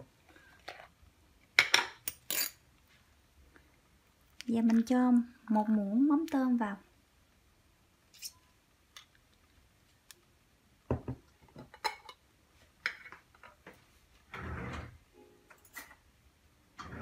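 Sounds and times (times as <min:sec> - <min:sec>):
spoon scraping: 0:08.1 - 0:08.5.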